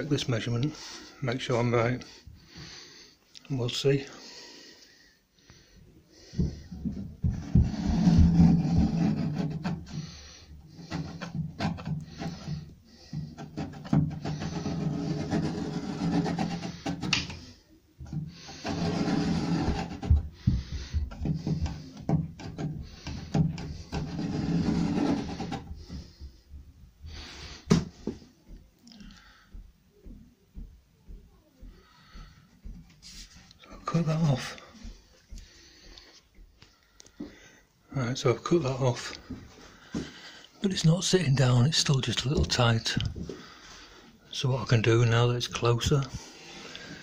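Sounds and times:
pencil scraping on tape: 13.4 - 17.4, 18.5 - 20.2, 22.4 - 25.7.

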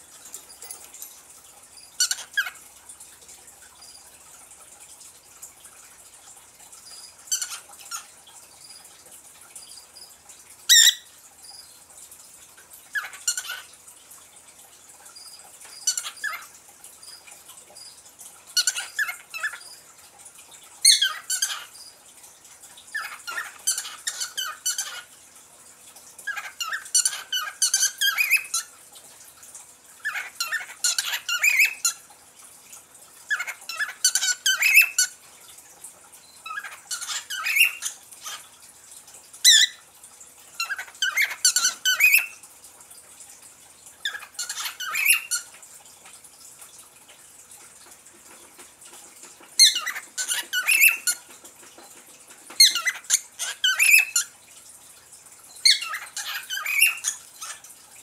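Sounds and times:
parrot chirping: 1.8 - 2.6, 6.8 - 8.8, 10.7 - 11.7, 12.9 - 13.7, 15.2 - 18.0, 18.6 - 19.8, 20.8 - 21.9, 22.9 - 25.1, 26.2 - 28.7, 30.0 - 32.0, 33.3 - 35.2, 36.4 - 38.5, 39.4 - 39.8, 40.6 - 42.4, 44.0 - 45.6, 49.6 - 51.3, 52.5 - 54.3, 55.6 - 57.6.

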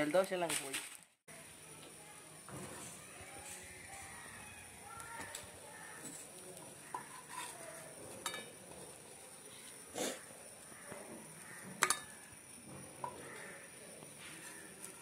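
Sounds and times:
spatula scraping frying pan: 5.9 - 8.5.

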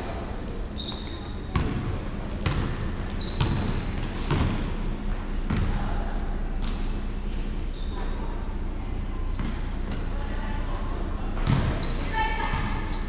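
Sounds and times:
shoe squeaks: 0.0 - 1.7, 3.2 - 5.1, 7.4 - 8.4, 11.2 - 13.0
basketball bouncing on wooden floor: 0.9 - 2.8, 3.4 - 4.6, 11.4 - 11.8.

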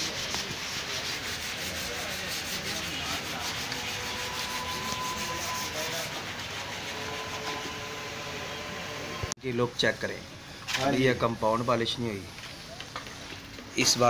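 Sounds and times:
hand sanding strokes: 0.0 - 7.9.

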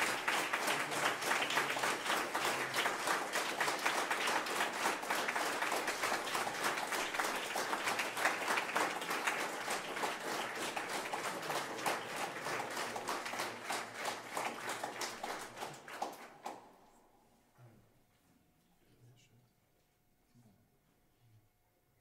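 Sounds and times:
audience applauding: 0.0 - 16.6.

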